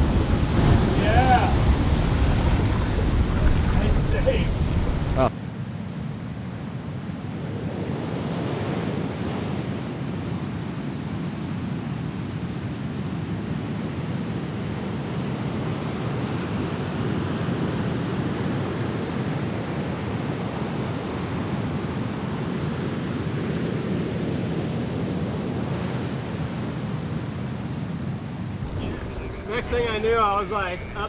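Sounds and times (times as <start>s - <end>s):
heavy surf breaking: 0.0s - 5.3s, 13.6s - 31.0s
wind: 0.0s - 31.0s.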